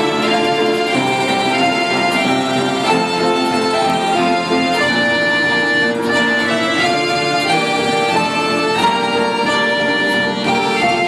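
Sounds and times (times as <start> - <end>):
orchestra playing: 0.0 - 11.0.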